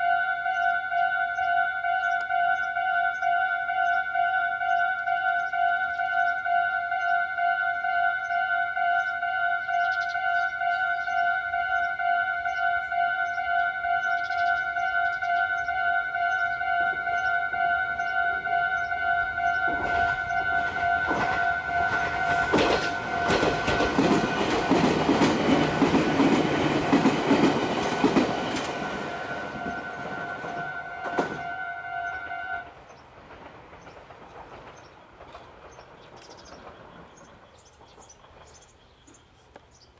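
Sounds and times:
level-crossing warning bell ringing: 0.0s - 32.8s
train wheels clacking over rail joints: 19.7s - 31.5s, 32.8s - 38.8s.

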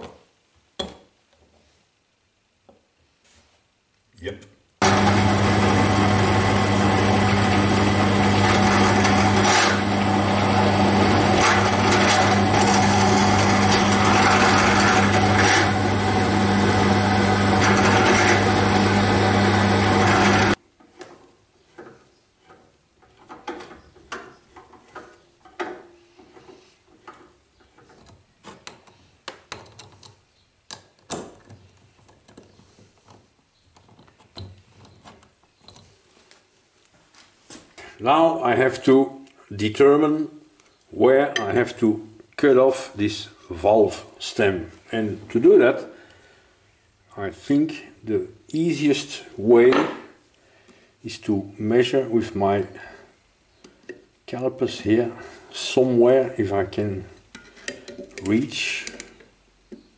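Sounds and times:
drill press drilling metal: 4.8s - 20.6s
metal parts clicking and tapping: 21.8s - 36.0s, 57.3s - 59.4s.

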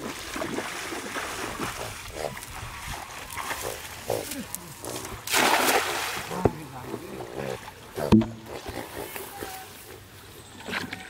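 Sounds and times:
net splashing onto water: 5.2s - 6.7s.

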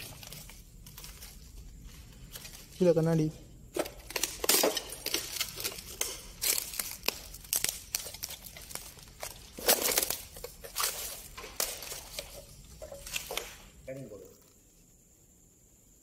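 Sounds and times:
footsteps crunching over debris: 3.8s - 13.6s.

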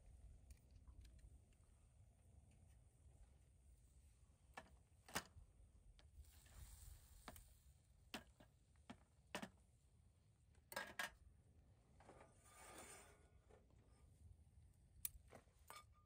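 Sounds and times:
soft rustle: 6.1s - 7.8s.

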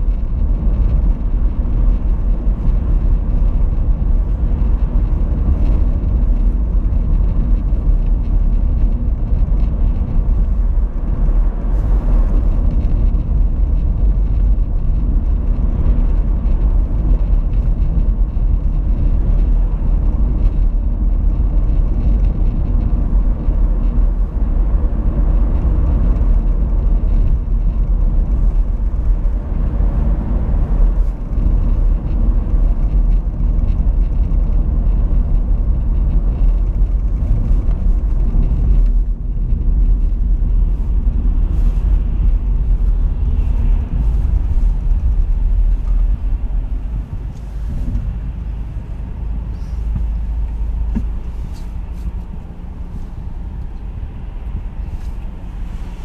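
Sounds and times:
car road noise rumble: 0.0s - 56.0s.

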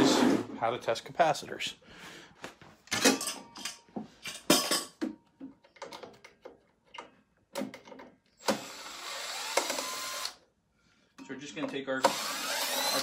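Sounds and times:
tools knocking and clattering: 2.8s - 8.3s
cordless drill running: 8.4s - 10.4s, 12.0s - 13.0s.

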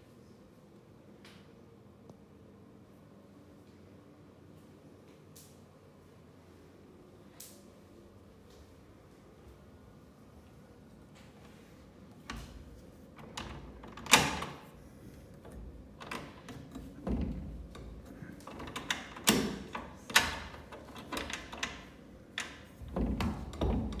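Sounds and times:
irregular knocks and clicks: 15.4s - 24.0s.

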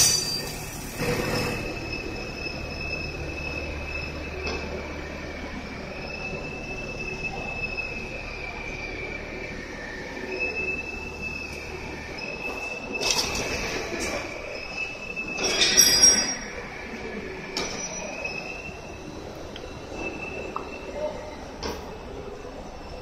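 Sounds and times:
machinery high whine: 0.0s - 23.0s.

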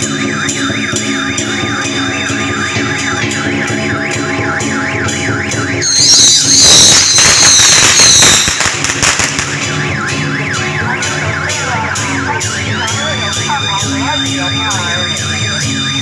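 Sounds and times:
warbling electronic alarm tone: 0.0s - 16.0s
loud crackling noise: 6.4s - 10.4s.

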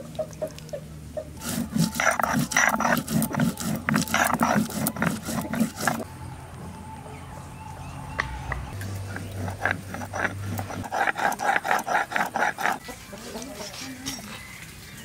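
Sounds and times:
stone grinding rasping scrape: 1.4s - 6.1s, 8.7s - 13.0s.

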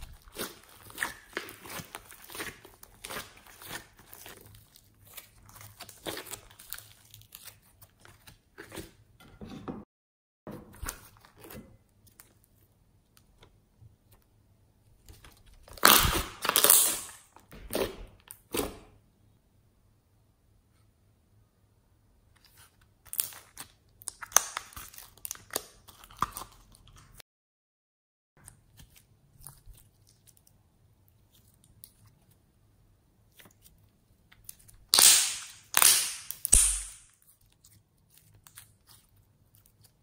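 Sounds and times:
slime crackling and popping: 0.0s - 8.0s, 15.6s - 17.8s, 34.4s - 40.0s
slime squishing: 0.0s - 9.1s, 10.7s - 19.0s, 22.2s - 26.9s, 28.4s - 40.0s.

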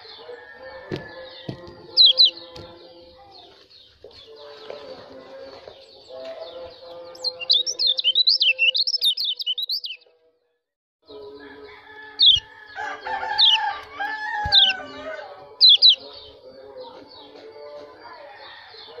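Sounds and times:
sharp downslurred bird notes: 1.4s - 2.7s, 7.0s - 10.0s, 15.6s - 16.2s
bird chattering calls: 1.9s - 2.4s, 7.2s - 10.0s, 12.2s - 12.5s, 15.6s - 16.2s.

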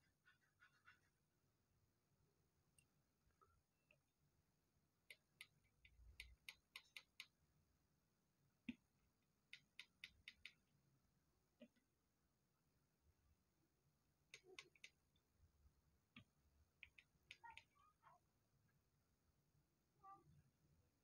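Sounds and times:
small plastic clicks: 5.1s - 7.4s, 14.3s - 15.0s.

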